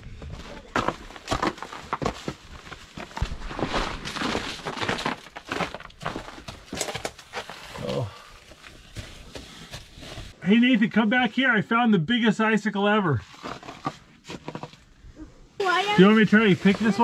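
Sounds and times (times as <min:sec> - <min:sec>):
footsteps crunching over snow and leaves: 0:00.2 - 0:10.4.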